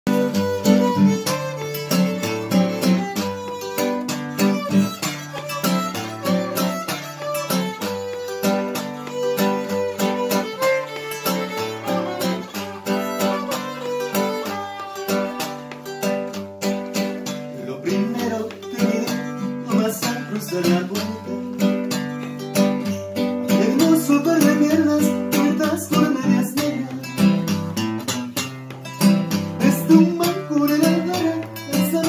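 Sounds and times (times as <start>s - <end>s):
violin melody: 0.1s - 17.6s, 18.2s - 23.0s
acoustic guitar strumming: 0.1s - 32.0s.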